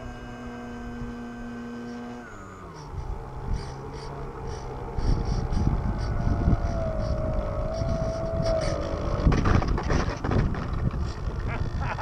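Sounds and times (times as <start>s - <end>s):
electric motor propeller whining: 0.0s - 12.0s
rumbling and knocks: 5.0s - 12.0s.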